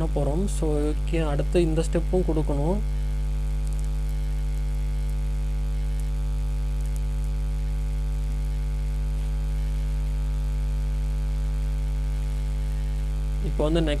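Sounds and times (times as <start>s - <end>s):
electrical hum: 0.0s - 14.0s
faint ticks: 3.6s - 5.2s, 5.8s - 8.6s.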